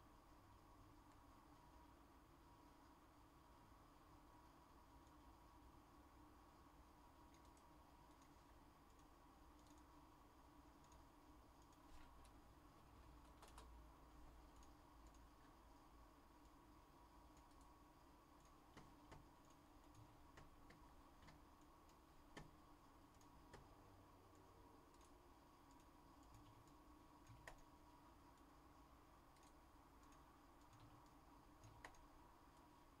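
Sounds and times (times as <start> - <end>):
faint steady hum: 0.0 - 33.0
faint clicks: 7.2 - 10.0, 10.7 - 12.4, 13.1 - 13.8, 14.4 - 15.6, 17.2 - 17.8, 18.4 - 28.6, 29.3 - 32.8.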